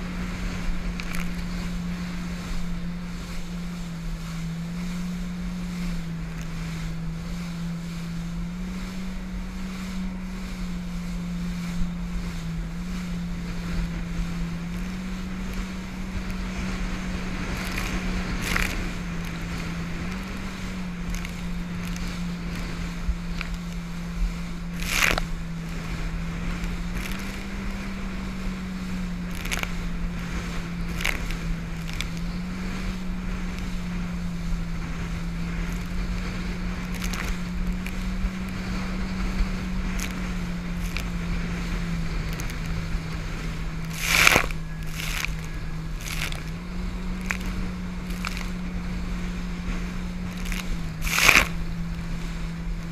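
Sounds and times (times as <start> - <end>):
jet ski engine droning: 0.0 - 52.9
water spray slapping camera: 0.3 - 52.9.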